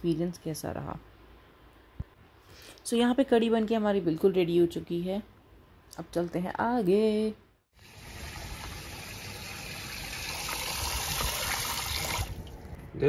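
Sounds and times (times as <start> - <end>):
water gushing from tap into tub: 7.8 - 12.4.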